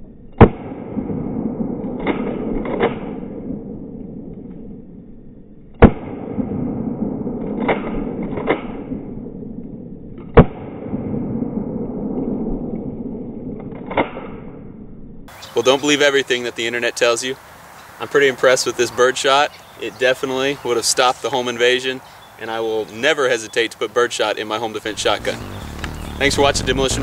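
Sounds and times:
sharp clicks: 0:25.0 - 0:26.3.

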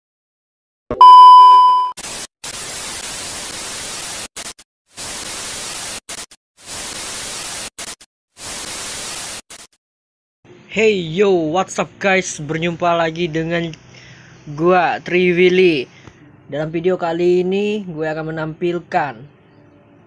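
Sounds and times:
test-tone beep: 0:00.9 - 0:02.0
tv static hiss: 0:02.0 - 0:09.7.

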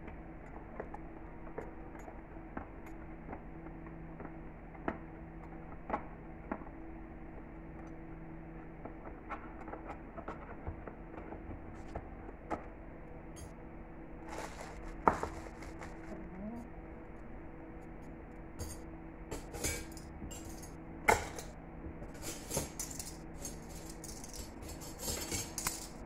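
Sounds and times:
steady low hum: 0:00.0 - 0:26.0
cutlery clinking: 0:22.2 - 0:26.0.

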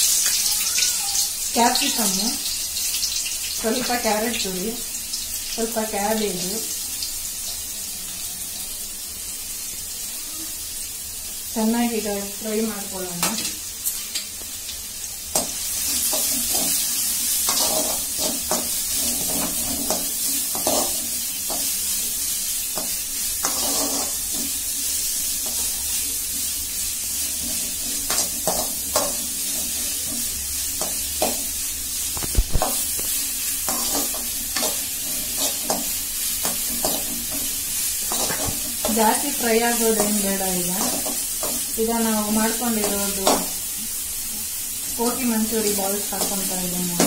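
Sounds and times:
vegetables sizzling in hot oil: 0:00.0 - 0:47.0
spoon scraping and clicking on pan: 0:17.5 - 0:21.7, 0:22.8 - 0:24.5, 0:32.2 - 0:37.5.

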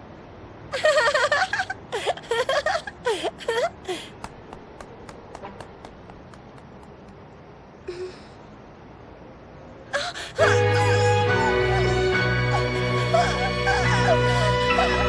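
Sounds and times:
woman gasping in pain: 0:03.0 - 0:04.2, 0:09.9 - 0:10.4
dramatic music chord: 0:10.4 - 0:15.0.

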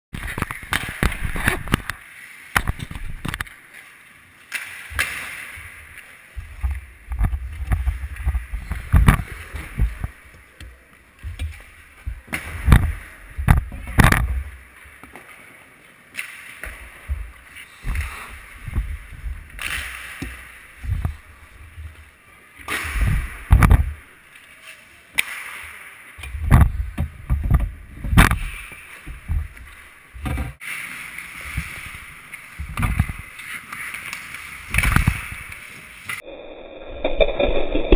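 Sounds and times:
sticks and pucks knocking: 0:16.6 - 0:22.1
skate blades scraping ice: 0:30.6 - 0:36.2.

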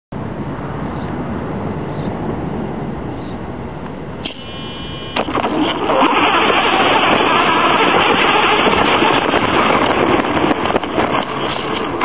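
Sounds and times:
electric motor whine: 0:04.2 - 0:05.5
toy truck driving over grass: 0:04.2 - 0:12.0.

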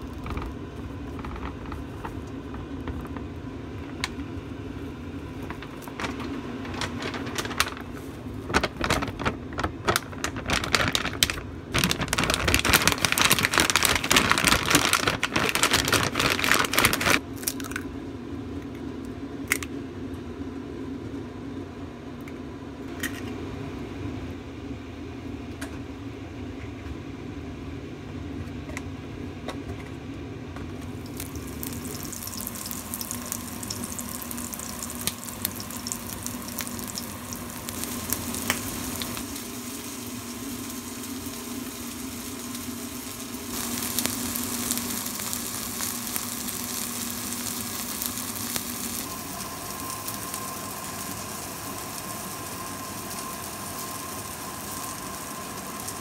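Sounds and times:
batter sizzling in a frying pan: 0:30.9 - 0:56.0.

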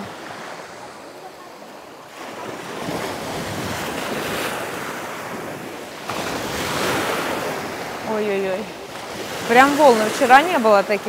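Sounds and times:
waves breaking on shore: 0:00.0 - 0:11.0
wind buffeting microphone: 0:02.3 - 0:11.0.

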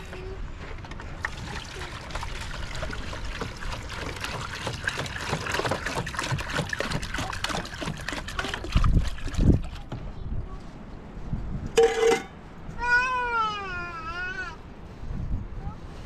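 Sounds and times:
water pouring into metal pot: 0:01.2 - 0:09.6.

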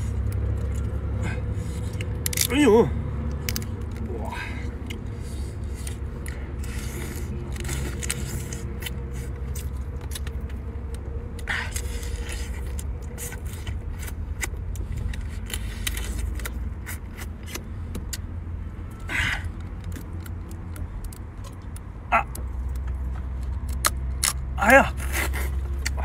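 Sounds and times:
steady low hum: 0:00.0 - 0:26.0
crab shell cracking: 0:01.9 - 0:02.6, 0:03.2 - 0:04.1, 0:23.5 - 0:24.5.

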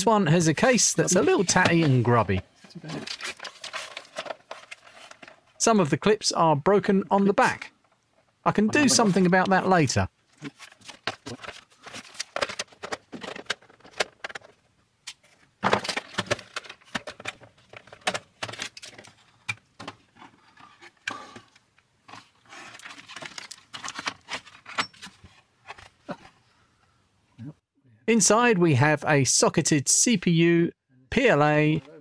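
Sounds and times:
plastic case clattering: 0:10.5 - 0:14.6, 0:15.6 - 0:20.8.

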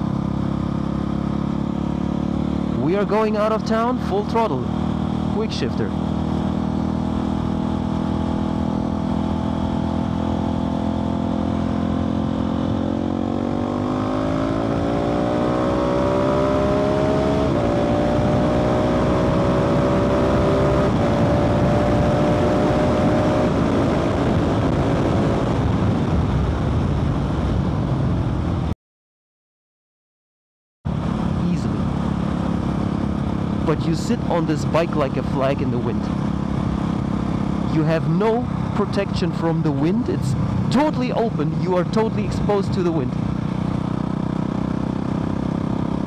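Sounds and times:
motorcycle engine accelerating: 0:00.0 - 0:28.7, 0:30.9 - 0:46.0
wind rush: 0:20.8 - 0:28.7.

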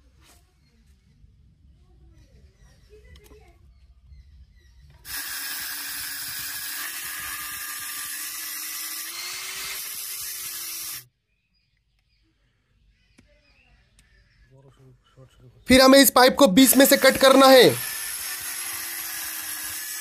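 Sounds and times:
angle grinder cutting metal: 0:05.1 - 0:11.1, 0:15.8 - 0:20.0.

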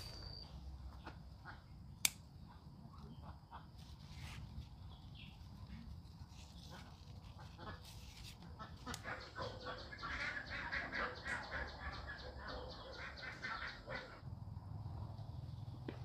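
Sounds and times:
ducks quacking: 0:06.7 - 0:14.2.

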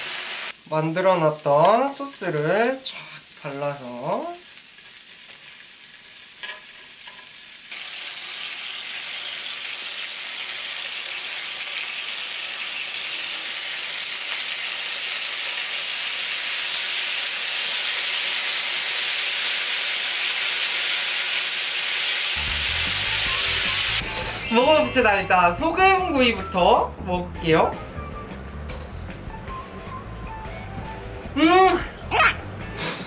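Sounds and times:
meat sizzling on a griddle: 0:00.0 - 0:24.8.

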